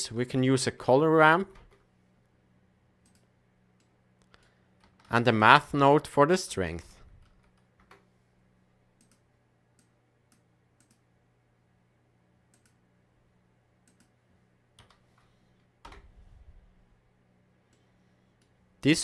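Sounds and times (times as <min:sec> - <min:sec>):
low steady hum: 0:00.0 - 0:19.0
computer mouse clicks: 0:03.0 - 0:05.1, 0:09.0 - 0:09.2, 0:09.8 - 0:11.0, 0:12.5 - 0:12.8, 0:13.8 - 0:14.2.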